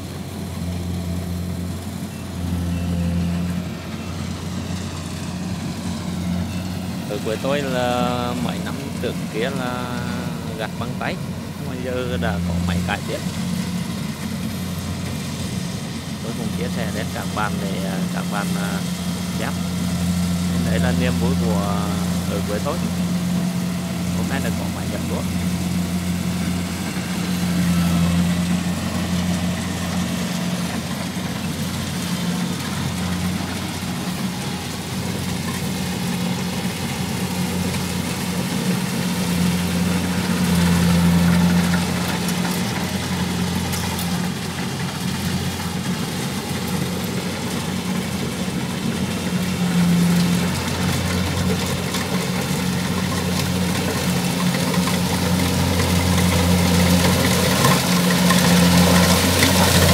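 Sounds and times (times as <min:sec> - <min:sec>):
combine harvester diesel engine: 0:00.0 - 0:59.9.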